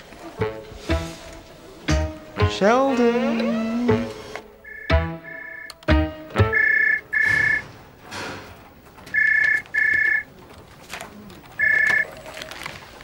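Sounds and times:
desk telephone ringing: 4.6 - 7.6, 9.1 - 10.3, 11.6 - 12.2.

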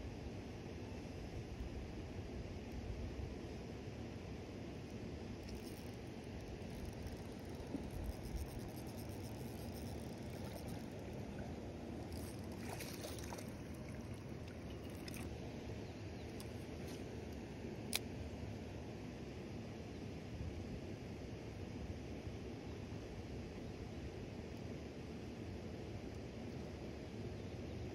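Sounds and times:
low background rumble: 0.0 - 19.6.

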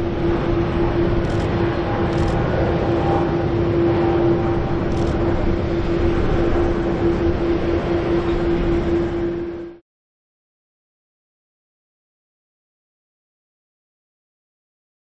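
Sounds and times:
jet airliner taking off: 0.0 - 9.8.

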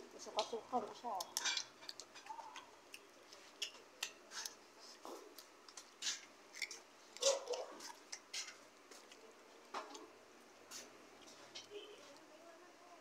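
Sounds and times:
child chewing crunchy snack: 1.2 - 9.4.

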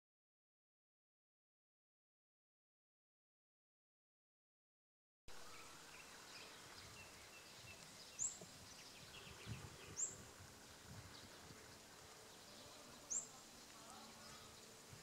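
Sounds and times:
soft bird chatter: 5.3 - 15.0
bird high chirp: 5.4 - 10.2, 11.1 - 14.9.

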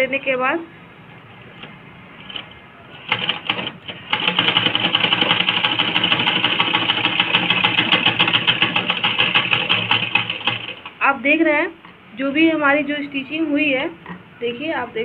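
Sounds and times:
sewing machine ticking: 2.2 - 11.0.

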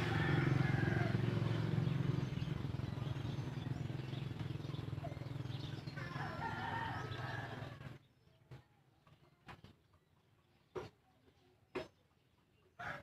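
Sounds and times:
rooster crowing: 0.0 - 1.5, 6.0 - 7.8, 12.8 - 13.0.

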